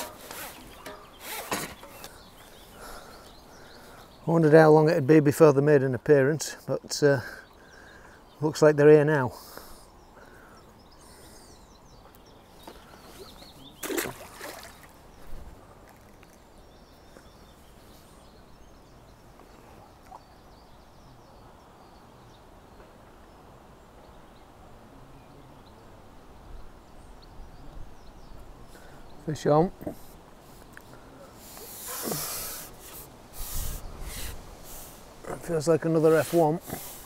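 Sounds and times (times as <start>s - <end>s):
sharp rustle or knock: 0.0s - 2.2s
faint outdoor background noise: 0.0s - 37.0s.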